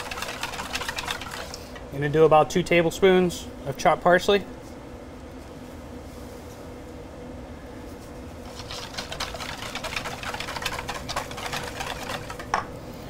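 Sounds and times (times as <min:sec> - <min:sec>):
whisk clicking in metal bowl: 0:00.0 - 0:01.6, 0:08.6 - 0:12.6.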